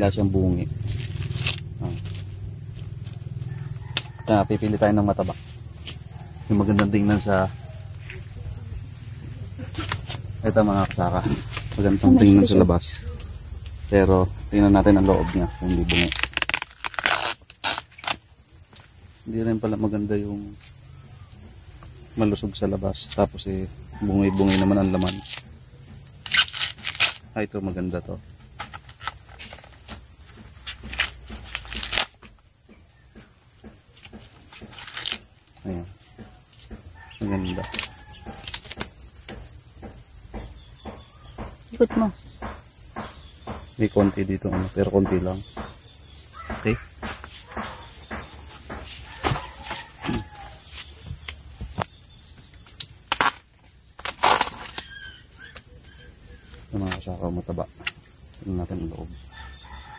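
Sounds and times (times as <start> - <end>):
corn husks crackling and rustling: 0.0 - 7.2, 14.0 - 20.7, 22.2 - 32.5, 33.2 - 36.0, 48.4 - 56.0
crickets chirping: 0.0 - 59.9
high-pitched insect drone: 0.0 - 59.9.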